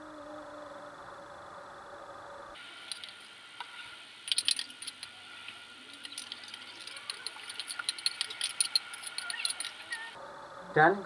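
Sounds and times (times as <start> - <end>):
metal spoon clinking and scraping: 2.9 - 3.3, 4.3 - 5.2, 5.9 - 10.2.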